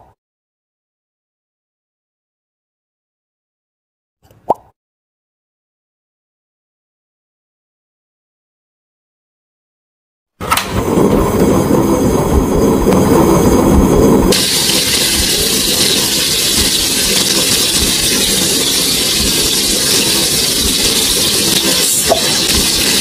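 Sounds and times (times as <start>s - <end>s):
low rushing rumble: 10.7s - 23.0s
food sizzling on a grill: 14.4s - 23.0s.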